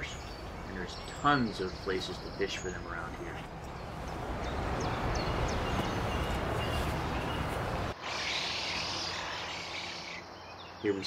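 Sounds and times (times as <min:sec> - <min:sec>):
deep rumble of distant traffic: 0:00.0 - 0:11.0
high hissing background: 0:07.9 - 0:11.0.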